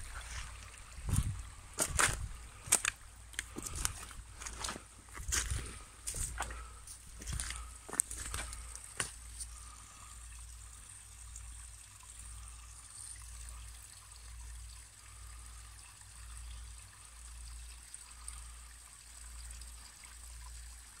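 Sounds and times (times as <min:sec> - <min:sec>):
low microphone rumble: 0:00.0 - 0:02.7
water trickling into pool: 0:00.0 - 0:21.0.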